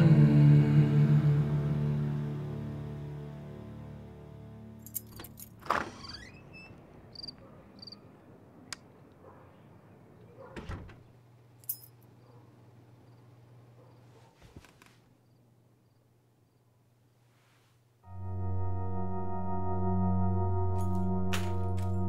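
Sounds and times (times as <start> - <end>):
keys jangling: 4.8 - 5.6, 11.6 - 12.0
door rattling: 10.6 - 11.1.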